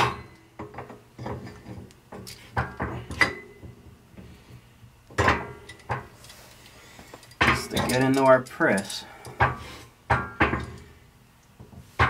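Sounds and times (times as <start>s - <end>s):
steel parts clinking and knocking: 5.1s - 10.9s.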